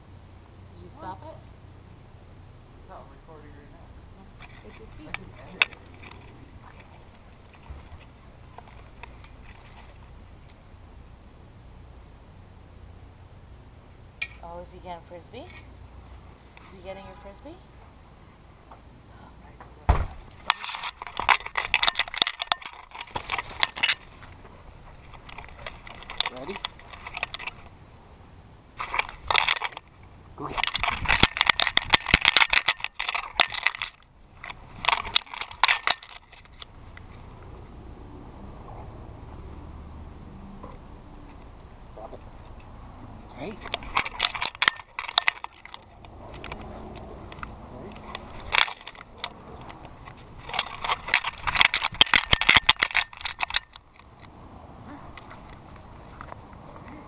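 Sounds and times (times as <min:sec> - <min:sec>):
dog collar tags jingling: 0:04.3 - 0:10.6, 0:20.3 - 0:27.7, 0:28.8 - 0:37.3, 0:43.5 - 0:56.4.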